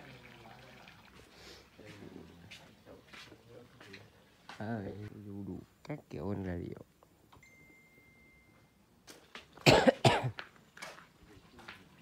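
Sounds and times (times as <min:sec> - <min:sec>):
person coughing: 0:09.6 - 0:10.4.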